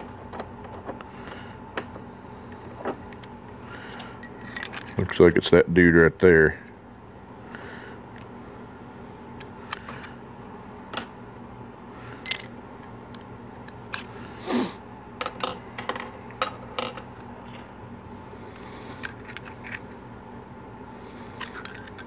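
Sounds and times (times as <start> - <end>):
metal parts clicking and clinking: 2.5 - 5.5, 12.2 - 14.1, 19.0 - 20.0, 21.4 - 22.0.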